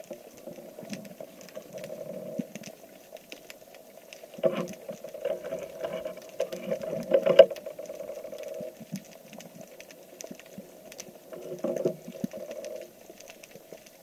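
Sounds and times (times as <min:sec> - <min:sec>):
underwater crackling clicks: 0:00.0 - 0:14.0.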